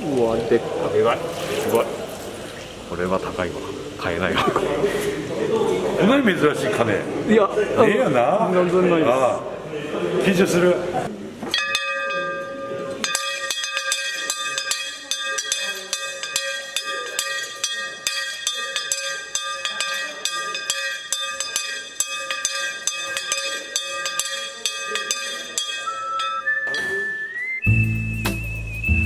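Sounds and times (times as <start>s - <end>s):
hand bell rung rapidly: 11.6s - 26.6s.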